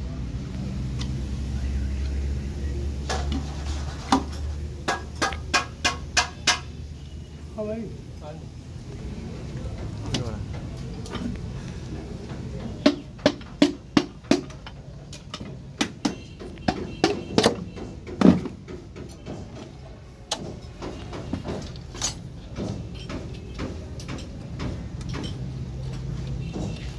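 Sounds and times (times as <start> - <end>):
metal clinks and knocks: 12.2 - 26.9.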